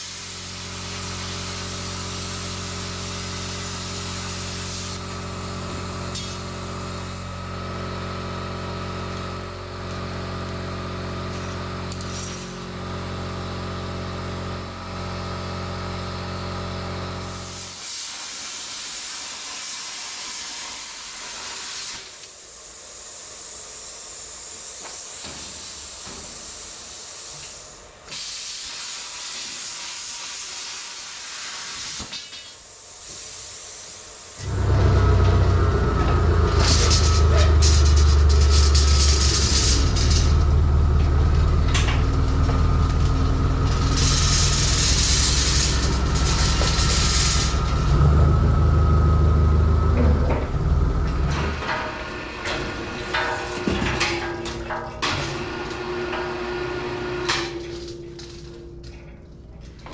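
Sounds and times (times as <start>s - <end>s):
cutting torch hissing: 0.0s - 5.2s, 17.4s - 32.1s, 32.7s - 48.8s
low machine hum: 34.4s - 59.9s.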